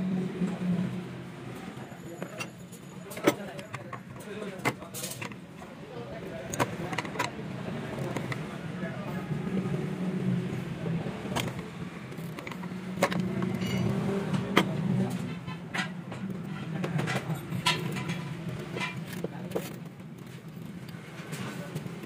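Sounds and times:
hand tool clicks and knocks: 11.3 - 14.8.

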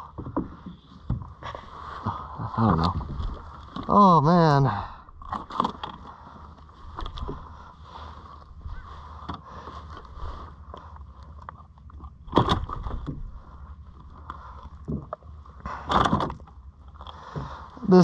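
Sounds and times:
knocking and scraping on kayak: 0.0 - 1.5, 6.8 - 11.4
low rumble of water and wind: 0.0 - 18.0.

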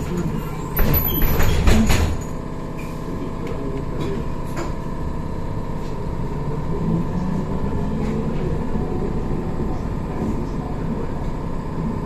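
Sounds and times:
trolleybus hum: 0.0 - 12.0
knocking and rattling: 0.8 - 2.4.

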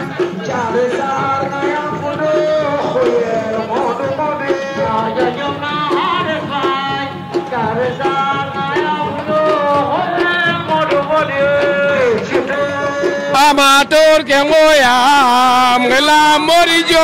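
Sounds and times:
hand drum strikes: 0.0 - 13.4.

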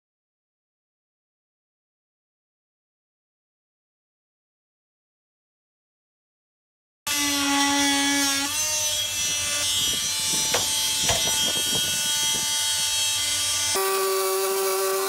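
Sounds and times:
angle grinder cutting: 7.1 - 15.0.

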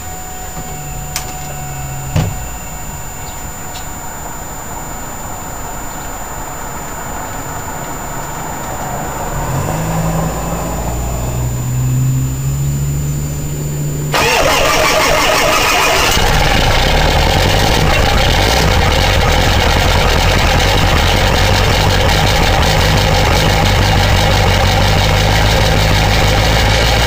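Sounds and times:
low mechanical hum: 0.0 - 27.0
sharp knock: 2.1 - 2.5.

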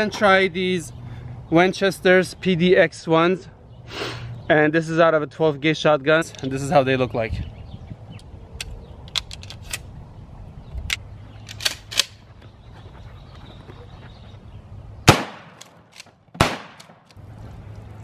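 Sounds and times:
shotgun shots: 15.1 - 17.0.

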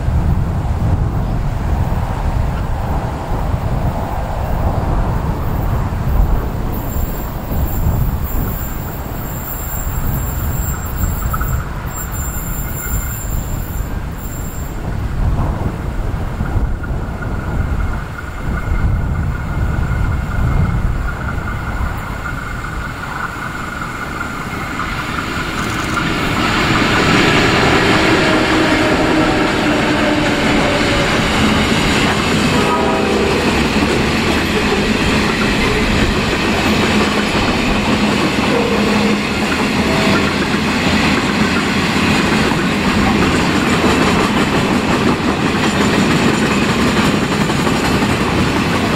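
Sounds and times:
diesel locomotives passing: 0.0 - 48.9
wind rumbling on microphone: 0.0 - 48.9
wagons rolling on track: 33.6 - 48.9.

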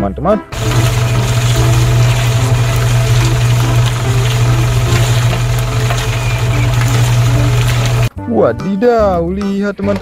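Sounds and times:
faint background music: 0.0 - 0.6, 6.8 - 10.0.

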